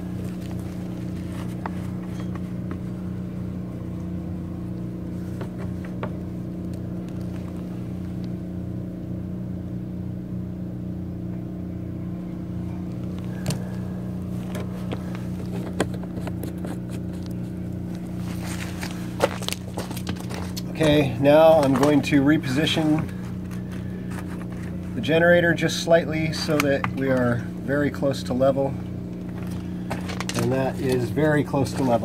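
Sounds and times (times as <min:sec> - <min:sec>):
handling clicks and knocks: 0:00.0 - 0:08.4, 0:12.9 - 0:25.2, 0:26.1 - 0:27.4, 0:28.9 - 0:32.0
engine humming steadily: 0:00.0 - 0:32.0.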